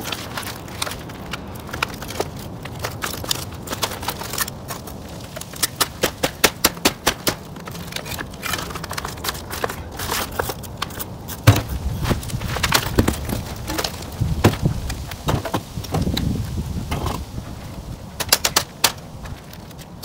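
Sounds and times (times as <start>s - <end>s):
bricks knocking and clinking: 5.6s - 16.1s.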